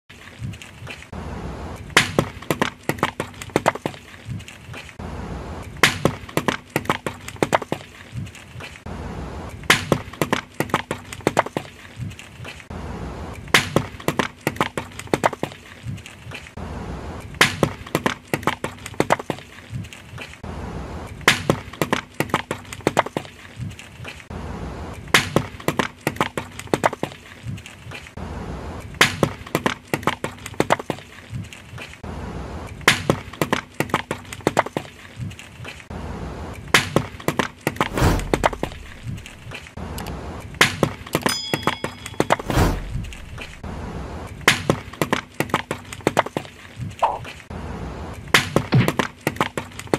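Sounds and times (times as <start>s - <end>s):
low steady hum: 41.3s - 44.5s.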